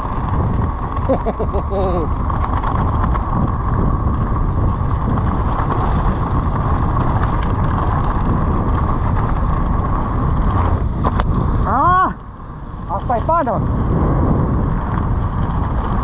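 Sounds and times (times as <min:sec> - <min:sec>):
low rumble: 0:00.0 - 0:16.0
wind rushing over microphone: 0:00.0 - 0:16.0.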